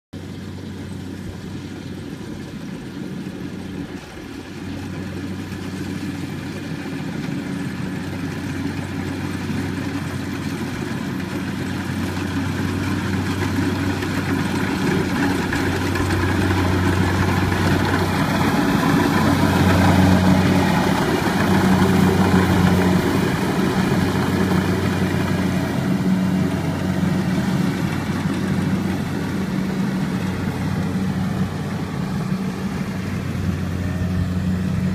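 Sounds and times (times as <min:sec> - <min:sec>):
combine harvester engine hum: 0:00.2 - 0:34.9.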